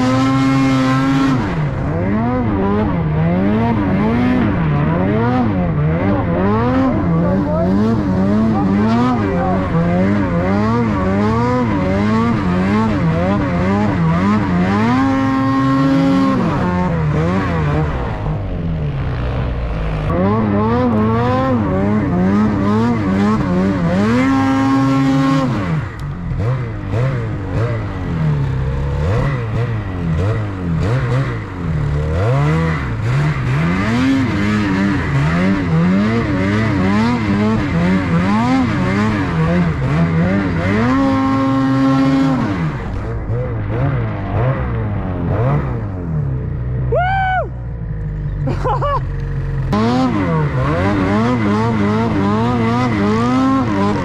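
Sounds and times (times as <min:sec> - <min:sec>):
snowmobile engine revving: 0:00.0 - 0:54.0.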